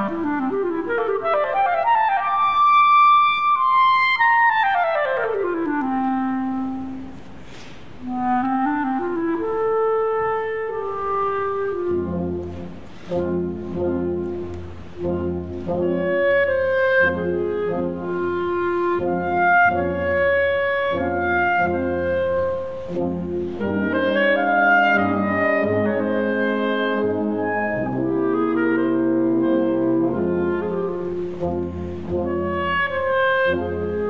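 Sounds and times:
solo clarinet melody: 0:00.0 - 0:34.0
wind band sustained chords: 0:07.9 - 0:34.0.

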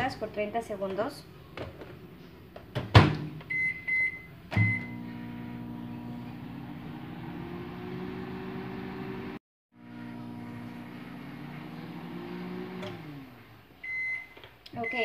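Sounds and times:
microwave oven humming: 0:03.5 - 0:14.2.

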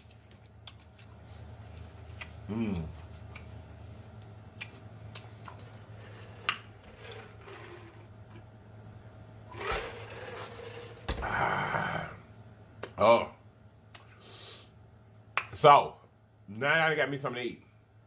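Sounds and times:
person humming: 0:02.5 - 0:03.0
wet mouth clicks and smacks: 0:04.5 - 0:05.6.

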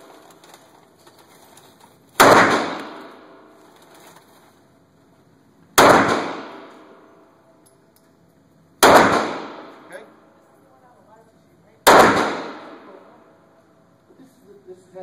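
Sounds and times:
pistol shots echoing indoors: 0:02.2 - 0:03.6, 0:05.8 - 0:08.1, 0:08.7 - 0:10.6, 0:11.8 - 0:13.7.

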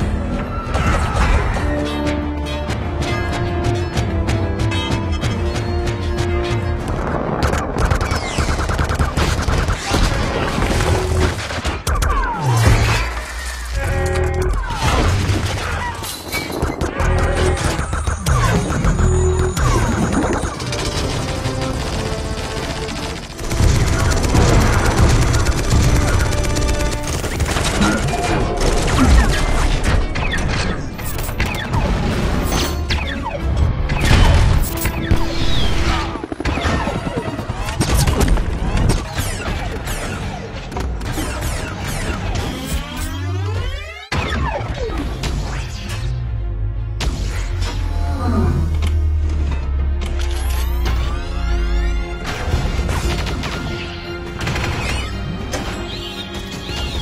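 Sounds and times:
film score music: 0:00.0 - 0:57.0
mechanical robot noises: 0:07.3 - 0:46.1.

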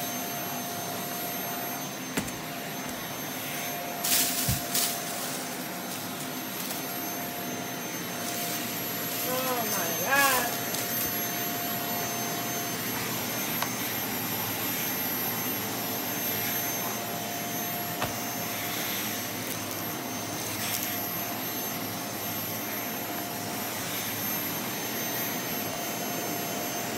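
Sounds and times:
vacuum cleaner running over carpet: 0:00.0 - 0:26.9.

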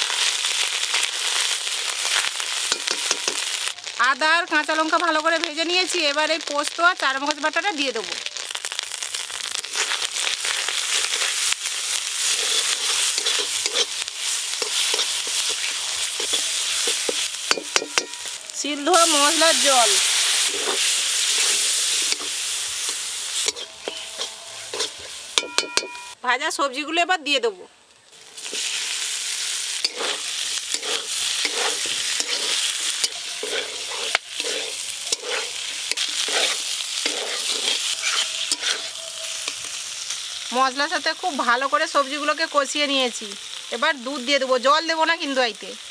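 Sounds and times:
paste sizzling in hot oil: 0:00.0 - 0:26.2, 0:28.0 - 0:45.9
metal spatula scraping pan: 0:12.2 - 0:18.4, 0:19.9 - 0:26.2, 0:29.8 - 0:39.8
spatula clinking on pan: 0:17.5 - 0:18.3, 0:24.8 - 0:26.2.

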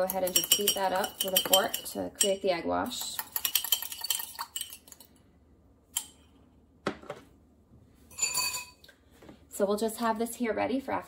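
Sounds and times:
fork clinking against mug: 0:00.2 - 0:02.3.

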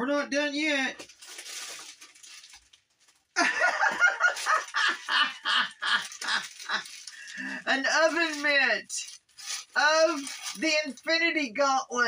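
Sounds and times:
soft rustling: 0:01.0 - 0:11.1
man laughing heartily: 0:03.4 - 0:07.6.

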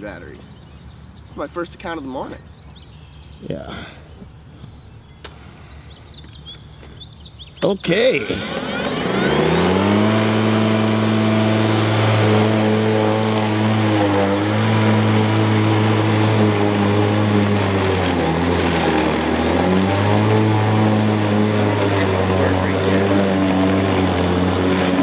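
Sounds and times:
electric lawn mower whirring: 0:07.8 - 0:25.0.

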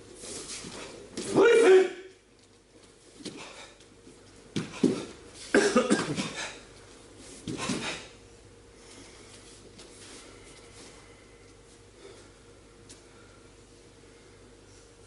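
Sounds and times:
forceful shouts: 0:01.3 - 0:02.1.

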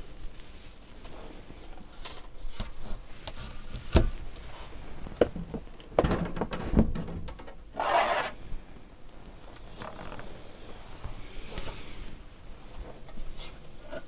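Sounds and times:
scraping rustle in cardboard box: 0:07.8 - 0:08.5.

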